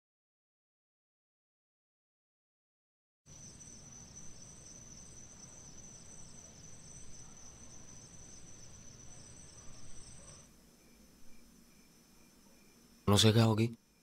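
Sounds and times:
crickets trilling: 0:03.3 - 0:14.0
pulsing cricket trill: 0:03.3 - 0:14.0.

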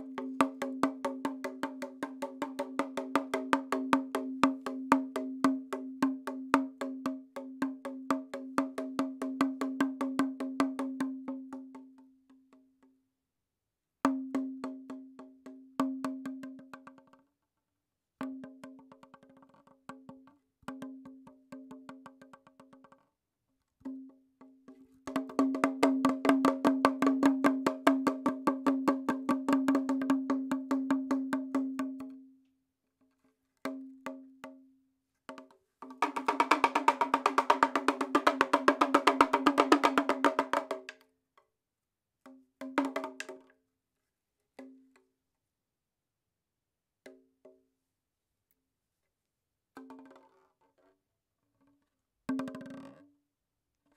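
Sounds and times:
fast clicking percussion: 0:35.9 - 0:41.0.

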